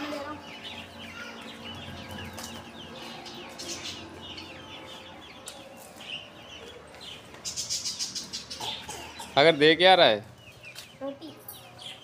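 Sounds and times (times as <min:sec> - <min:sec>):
chicks peeping: 0:00.0 - 0:12.0.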